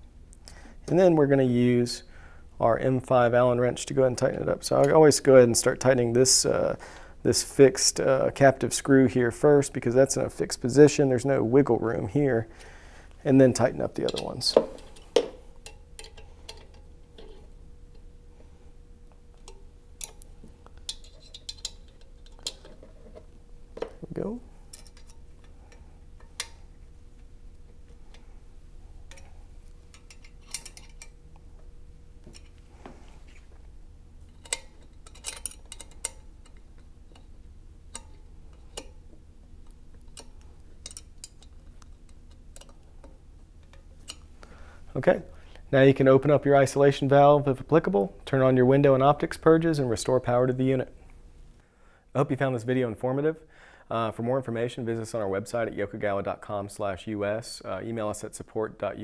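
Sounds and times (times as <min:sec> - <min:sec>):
allen wrench metallic clicks: 0:34.4 - 0:37.3.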